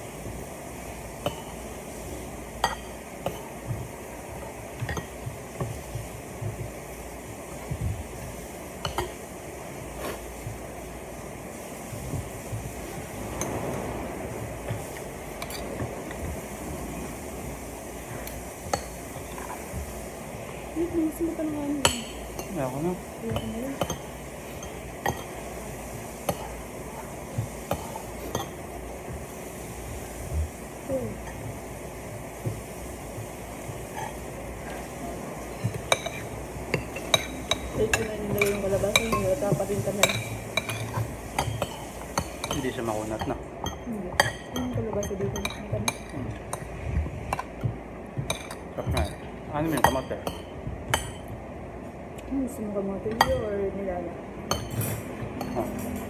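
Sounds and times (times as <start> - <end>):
cutlery clinking on plates: 54.5 - 56.0.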